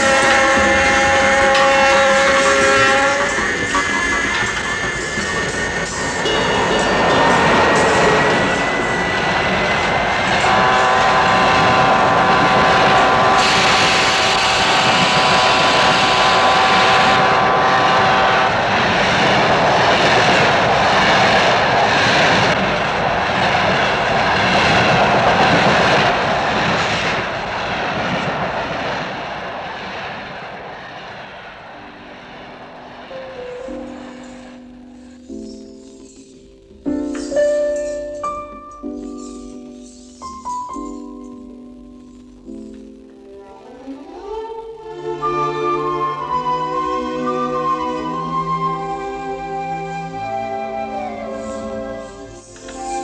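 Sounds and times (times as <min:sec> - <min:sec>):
train horn blast: 0:00.0 - 0:20.0
train rushing past: 0:00.0 - 0:41.8, 0:42.4 - 0:53.0.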